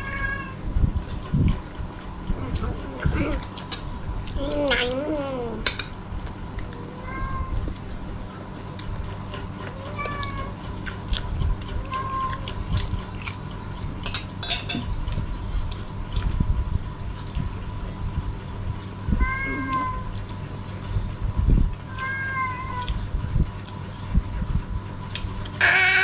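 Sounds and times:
cat meowing: 0.0s - 0.6s, 7.0s - 7.6s, 19.2s - 20.1s, 21.9s - 22.9s
spoons clinking on dishes: 14.0s - 14.9s.

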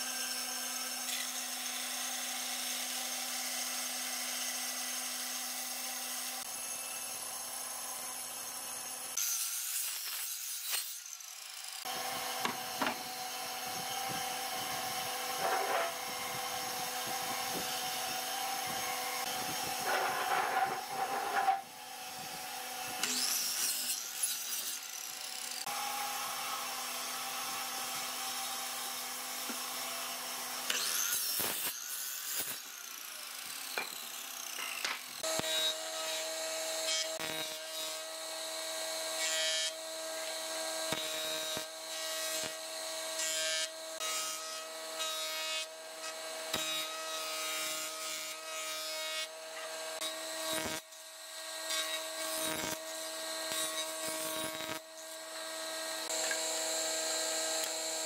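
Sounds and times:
jointer-planer planing wood: 11.8s - 23.7s.

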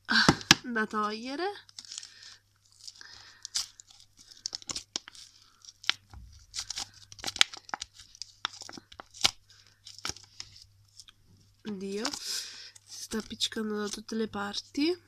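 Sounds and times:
plastic wrapper crinkling and tearing: 1.6s - 14.9s
slime crackling and popping: 2.6s - 14.2s.

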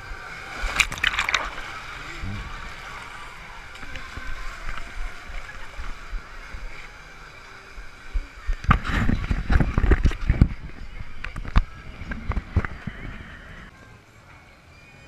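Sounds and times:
water running and sloshing: 0.0s - 10.6s.

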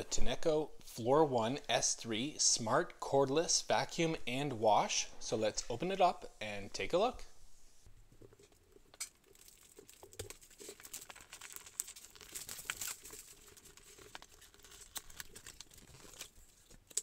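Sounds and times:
plastic wrap crinkling and tearing: 9.2s - 17.0s.

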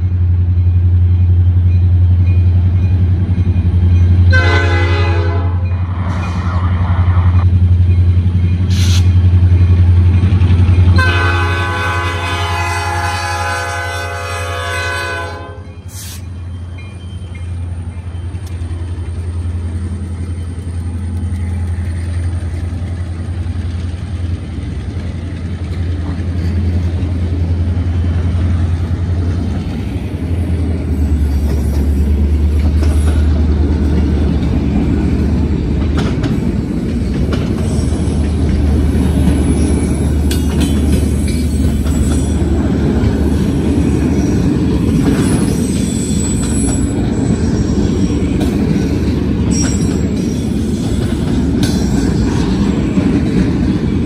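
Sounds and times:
train rumbling: 0.0s - 54.0s
locomotive horn blast: 4.3s - 5.8s, 11.0s - 15.8s.

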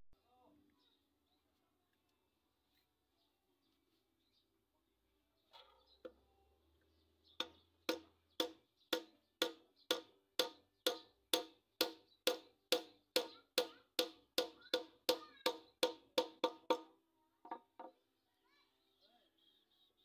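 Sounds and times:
hammer knocking on wooden handle: 7.4s - 18.0s.

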